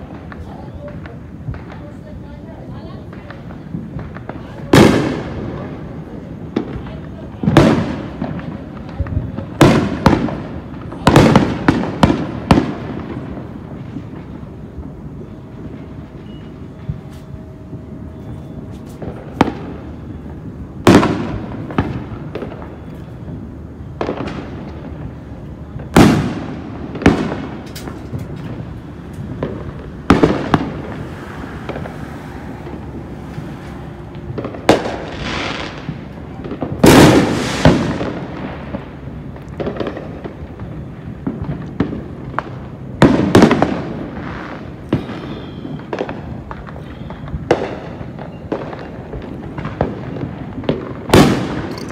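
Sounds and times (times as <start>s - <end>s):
distant firework pops: 0.0s - 15.0s, 18.7s - 23.3s, 34.1s - 51.9s
loud firework bangs: 0.0s - 51.9s.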